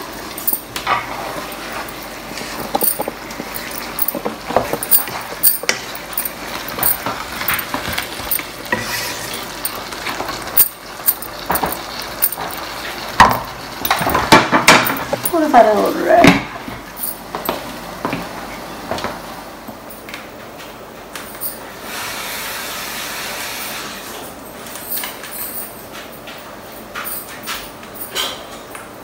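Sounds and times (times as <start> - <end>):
food sizzling: 0.0 - 19.4
spatula scraping wok: 7.6 - 10.6.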